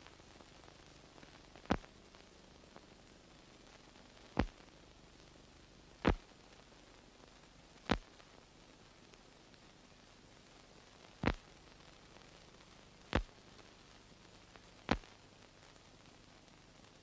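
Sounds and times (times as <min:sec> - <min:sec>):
film soundtrack hiss: 0:00.0 - 0:17.0
sharp clicks: 0:06.0 - 0:06.2.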